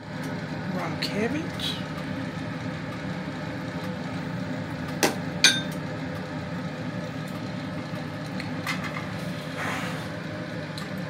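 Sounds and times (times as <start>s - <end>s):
low kitchen hum: 0.0s - 11.0s
utensil clinking on plate: 5.4s - 5.8s.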